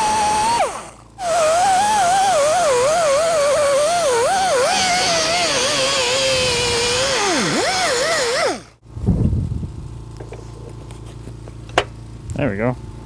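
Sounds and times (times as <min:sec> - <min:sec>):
die grinder whining on steel: 0:00.0 - 0:08.8
brief low rumble: 0:08.9 - 0:10.8.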